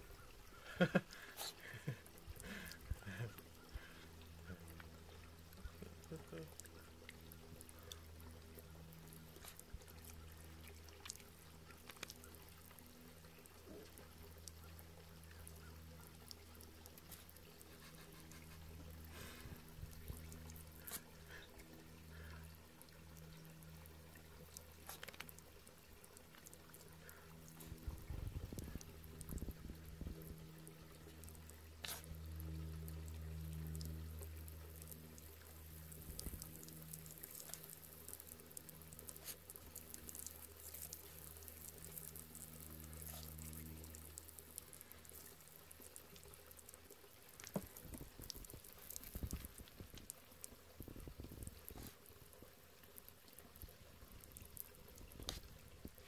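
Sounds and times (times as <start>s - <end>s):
low steady hum: 0.0s - 56.0s
water trickling from hose: 0.0s - 56.0s.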